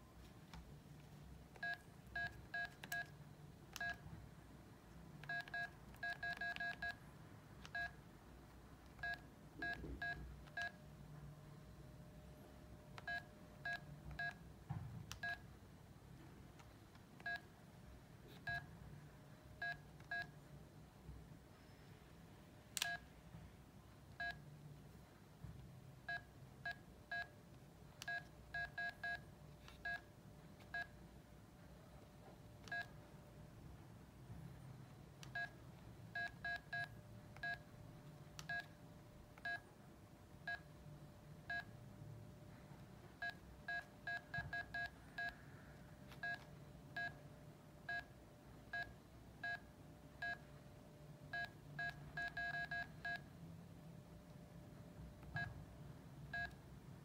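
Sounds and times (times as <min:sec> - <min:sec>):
faint steady tone: 0:00.0 - 0:57.0
phone keypad beeps: 0:01.6 - 0:04.1, 0:05.2 - 0:07.0, 0:07.6 - 0:08.0, 0:08.9 - 0:10.8, 0:13.0 - 0:14.4, 0:15.2 - 0:15.4, 0:17.2 - 0:17.5, 0:19.6 - 0:20.4, 0:24.2 - 0:24.4, 0:28.0 - 0:30.9, 0:32.6 - 0:33.0, 0:36.2 - 0:37.6, 0:38.4 - 0:38.7, 0:46.1 - 0:47.2, 0:51.4 - 0:53.3, 0:56.3 - 0:56.6.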